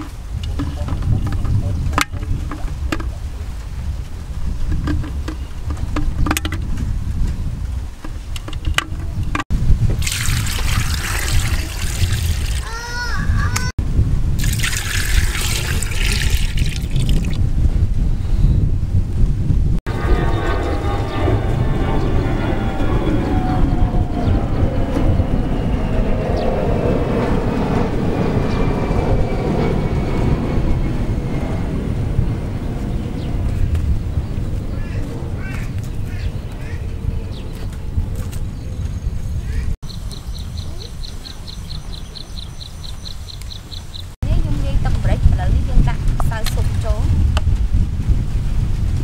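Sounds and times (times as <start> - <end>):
wind buffeting microphone: 0.0 - 49.0
water pouring into pot: 10.0 - 12.7, 14.4 - 17.4.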